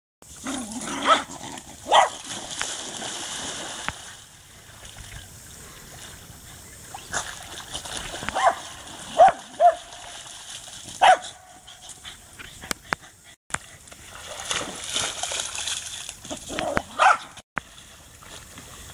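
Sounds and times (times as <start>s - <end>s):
water splashing: 0.3s - 11.5s, 13.6s - 18.9s
dogs barking: 0.9s - 2.2s, 8.3s - 9.9s, 11.0s - 11.4s, 16.6s - 17.4s.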